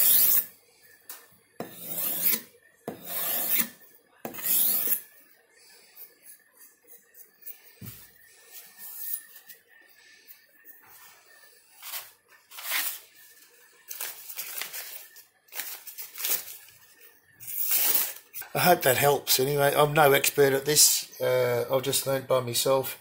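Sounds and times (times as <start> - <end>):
paper and tissue rustling: 11.8 - 18.4.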